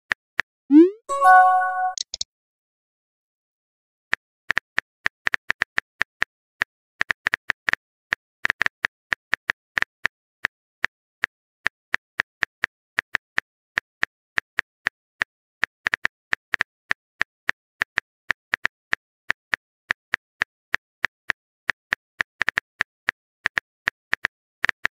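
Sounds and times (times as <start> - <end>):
phone keyboard typing clicks: 1.1 - 2.2.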